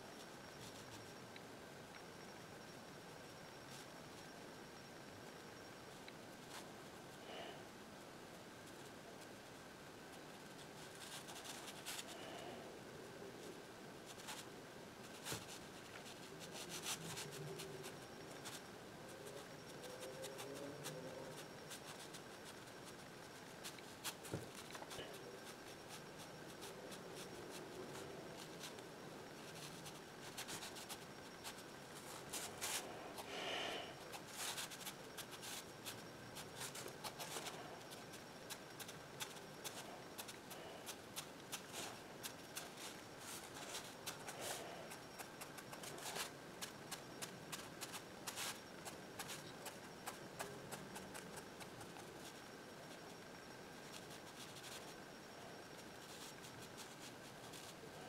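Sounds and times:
pen scratching on paper: 15.2s - 18.6s.

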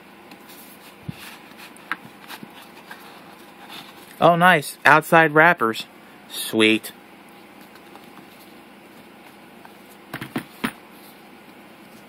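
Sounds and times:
cardboard box taps and knocks: 10.1s - 10.8s.

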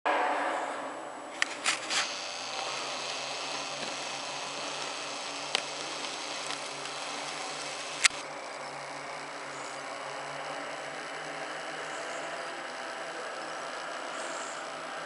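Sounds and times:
sharp clicks: 1.4s - 8.2s
steady hiss: 1.4s - 12.6s
distant truck engine drone: 1.4s - 15.0s.

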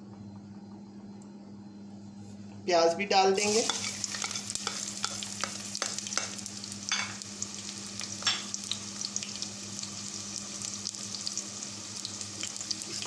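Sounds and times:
onions sizzling in hot oil: 3.4s - 13.0s.

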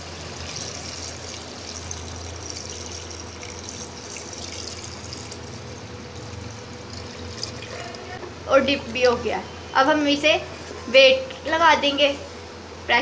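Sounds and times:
water pouring into metal pot: 0.3s - 8.2s.

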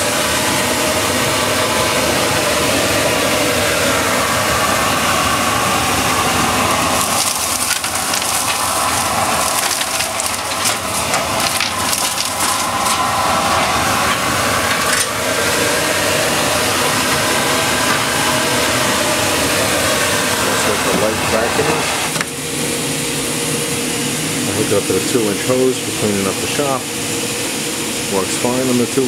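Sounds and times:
dust collector air rushing: 0.0s - 29.0s
dense crackling and rattling: 6.8s - 15.2s.

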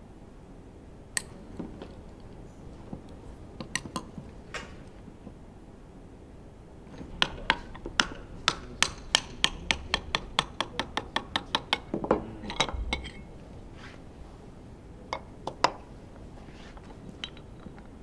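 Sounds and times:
metal tool tapping on piston: 7.2s - 13.2s.

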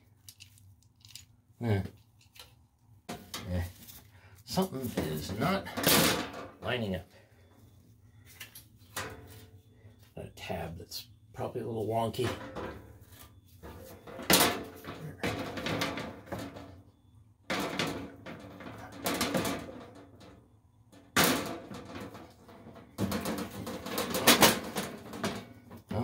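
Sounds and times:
metal panel cover scraping and clattering: 4.7s - 6.6s, 12.1s - 16.8s, 17.5s - 20.4s, 21.0s - 26.0s.

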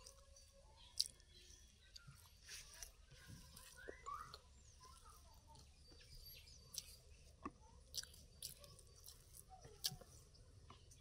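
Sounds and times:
faint bird chirps: 0.0s - 11.0s
person chewing wetly: 1.0s - 1.3s, 6.7s - 10.8s.

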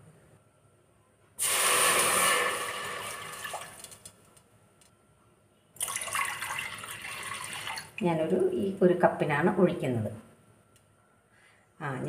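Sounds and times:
water pouring into a steel pot: 1.4s - 4.0s, 5.8s - 8.0s.

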